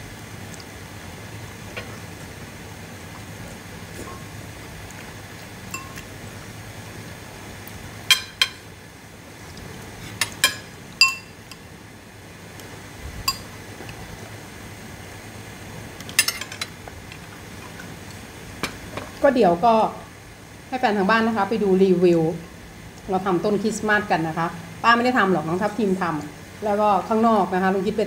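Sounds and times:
chopsticks clinking on bowls: 5.7s - 6.0s.

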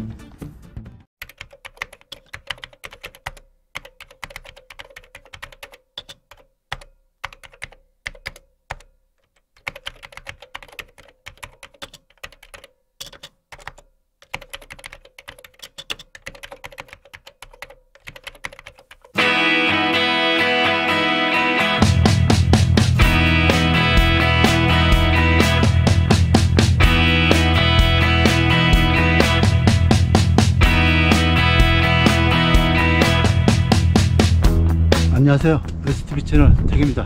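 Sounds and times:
computer keyboard typing: 1.2s - 19.2s.

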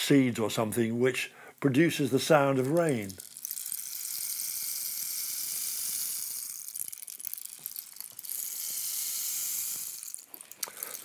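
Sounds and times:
rainstick grains trickling: 2.2s - 11.0s.

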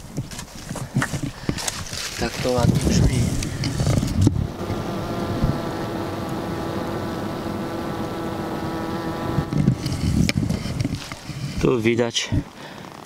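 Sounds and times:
rustling: 0.2s - 4.8s, 9.5s - 13.0s
bees humming: 3.6s - 10.8s.

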